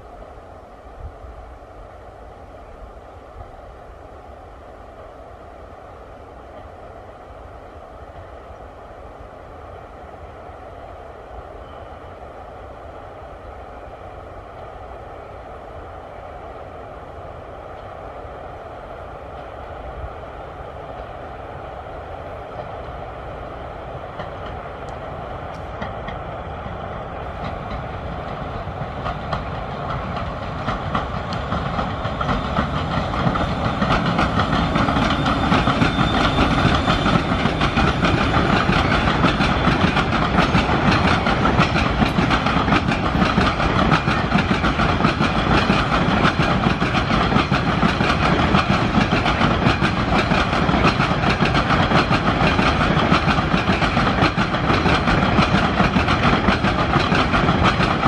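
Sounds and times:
train wheels clattering over rails: 24.1s - 58.0s.

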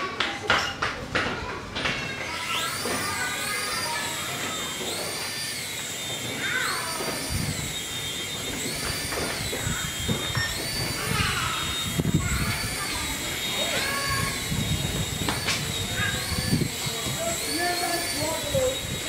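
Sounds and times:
toy helicopter rotor whining: 0.0s - 19.0s.

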